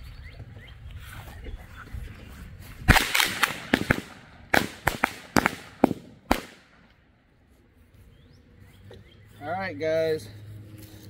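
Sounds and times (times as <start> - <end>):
firecrackers exploding: 2.9 - 6.8.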